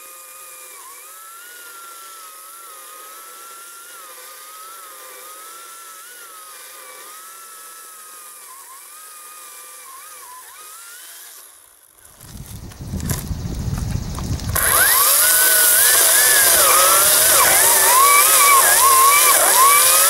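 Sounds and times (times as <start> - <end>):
chainsaw whining cutting wood: 0.0 - 20.0
low rumble: 12.1 - 14.8.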